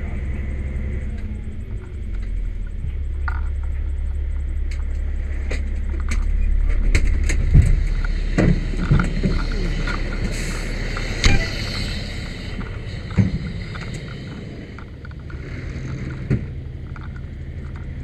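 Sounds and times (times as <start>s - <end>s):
truck engine idling: 0.0s - 18.0s.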